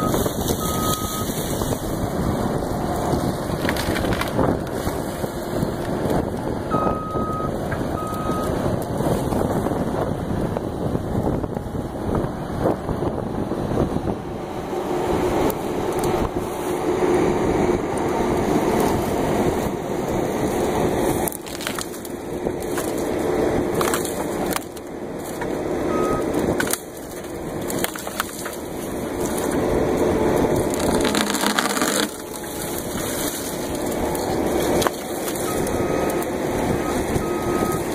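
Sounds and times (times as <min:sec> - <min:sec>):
hydraulic shear crushing brush: 0:00.0 - 0:06.2, 0:20.4 - 0:37.9
loader engine running: 0:00.0 - 0:37.9
wood snapping: 0:03.4 - 0:05.0, 0:21.1 - 0:25.6, 0:26.3 - 0:29.6, 0:30.4 - 0:36.3.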